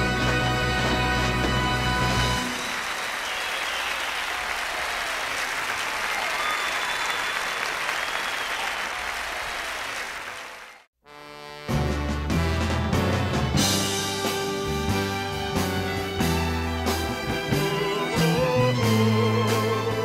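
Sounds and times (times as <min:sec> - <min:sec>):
audience applauding and cheering: 0:00.0 - 0:10.9.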